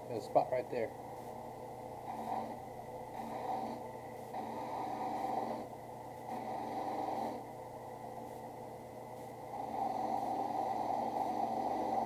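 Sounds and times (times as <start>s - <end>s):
drill press motor hum: 9.2s - 12.0s.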